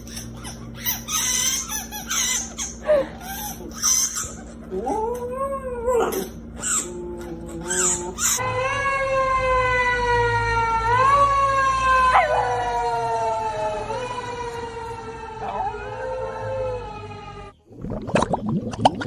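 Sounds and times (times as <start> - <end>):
emergency vehicle siren: 8.4 - 17.6
dog howling and yelping: 10.9 - 14.2.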